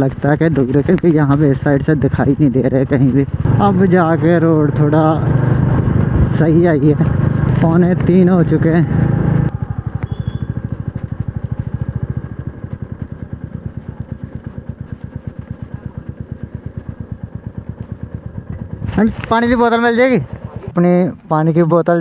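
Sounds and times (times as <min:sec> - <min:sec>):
motorcycle engine idling: 0:00.0 - 0:21.0.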